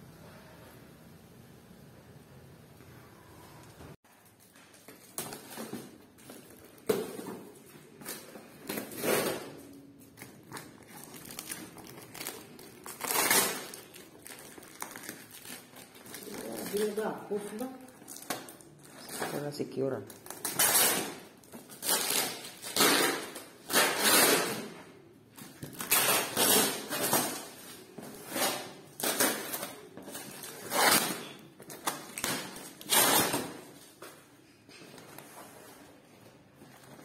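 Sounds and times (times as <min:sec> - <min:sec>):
scissors cutting packing tape: 0:20.2 - 0:24.7, 0:25.6 - 0:27.6, 0:28.2 - 0:33.6.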